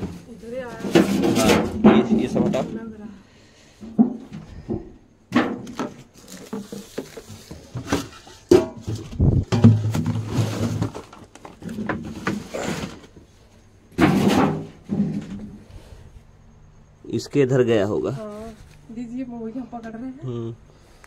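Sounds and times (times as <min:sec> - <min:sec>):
household clutter clattering: 0:00.0 - 0:03.0, 0:03.8 - 0:15.6.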